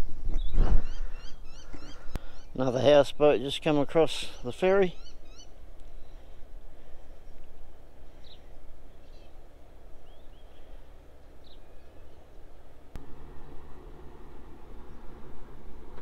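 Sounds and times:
bird chirps: 0:04.2 - 0:06.2.

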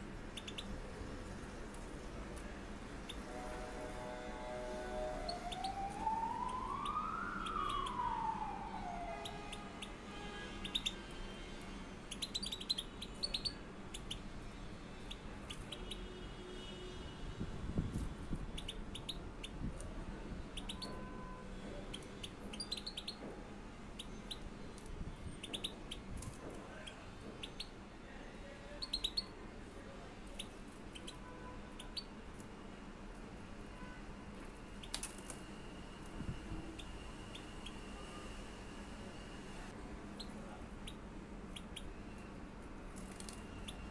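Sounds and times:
birds chirping: 0:00.2 - 0:00.9, 0:04.9 - 0:10.0, 0:12.1 - 0:14.3, 0:20.4 - 0:21.1, 0:21.9 - 0:23.2, 0:23.9 - 0:27.8, 0:30.3 - 0:32.2, 0:36.6 - 0:38.3, 0:43.2 - 0:43.9
siren rising and falling: 0:04.9 - 0:09.8.

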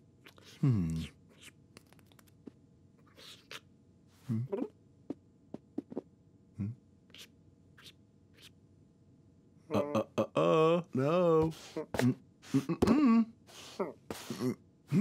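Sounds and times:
low vocal murmurs: 0:00.4 - 0:01.2, 0:06.6 - 0:06.8.

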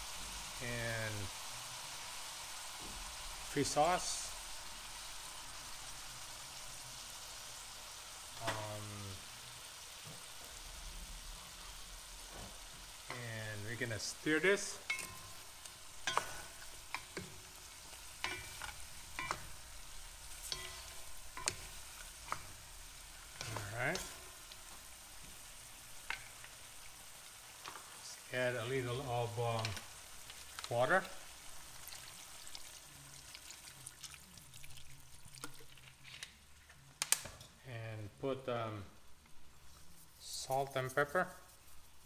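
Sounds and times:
food sizzling in a metal pot: 0:00.0 - 0:42.0
water pouring into pot: 0:29.4 - 0:36.0.

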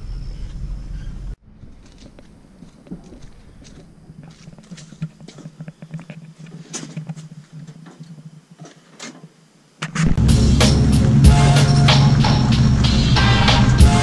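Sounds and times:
faint low hum: 0:00.0 - 0:10.2
car parts being handled: 0:01.6 - 0:10.1.

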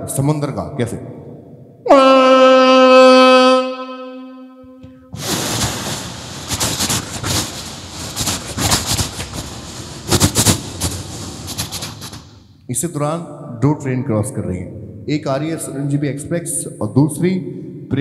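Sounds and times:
man imitating train horn: 0:01.9 - 0:04.7.

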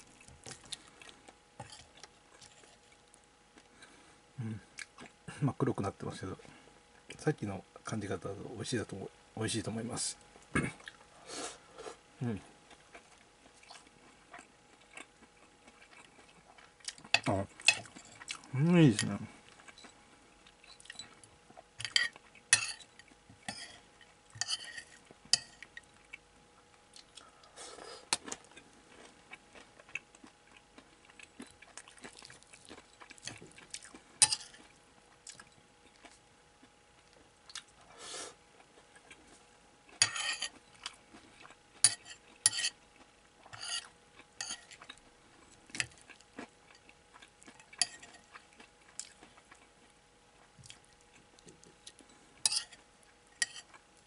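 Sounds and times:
metal spoon scraping ceramic plate: 0:23.5 - 0:23.8, 0:24.4 - 0:25.6, 0:40.0 - 0:40.5, 0:41.9 - 0:42.8, 0:43.5 - 0:44.7, 0:52.5 - 0:52.8.

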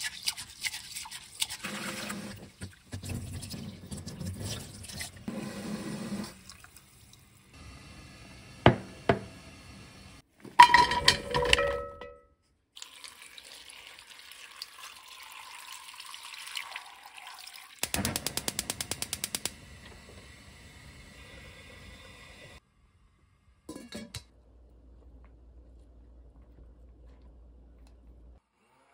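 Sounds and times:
water pouring into pot: 0:00.8 - 0:07.5, 0:12.8 - 0:20.2
tap water running into cup: 0:04.4 - 0:07.2, 0:12.8 - 0:17.8
steel pot clanking: 0:10.5 - 0:12.3
rapid clicks: 0:17.8 - 0:19.6.

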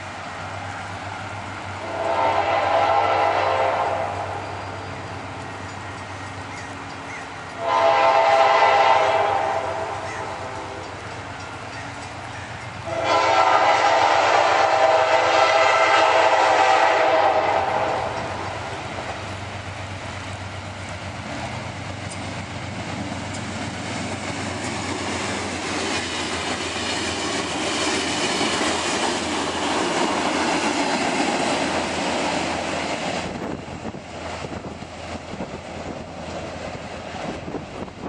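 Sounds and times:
train wheels clattering over rails: 0:04.2 - 0:38.0.

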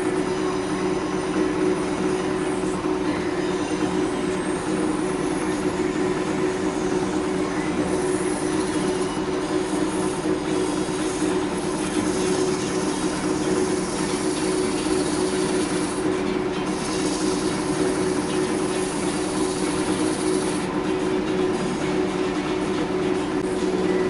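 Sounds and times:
wood lathe humming: 0:00.0 - 0:24.0
finishing pad hissing on rim: 0:07.9 - 0:16.1, 0:16.7 - 0:20.7.

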